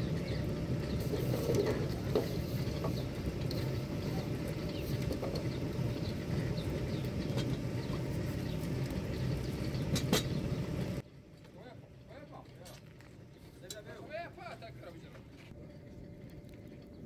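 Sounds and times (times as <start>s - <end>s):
small birds chirping: 0.0s - 11.0s
steady low rumble: 0.0s - 11.1s.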